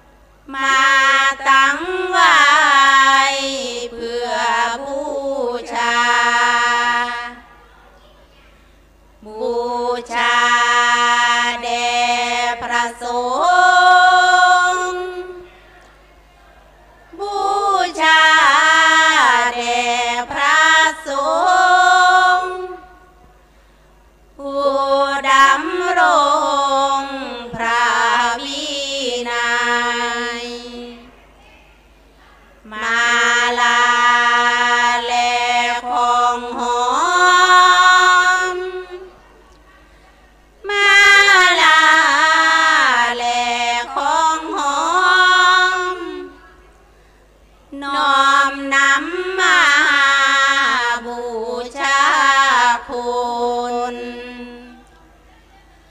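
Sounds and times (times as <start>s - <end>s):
women singing devotional chant: 0.4s - 7.6s, 9.2s - 23.3s, 24.4s - 46.8s, 47.7s - 55.9s
woman chanting over microphones: 17.1s - 23.1s, 47.7s - 55.9s.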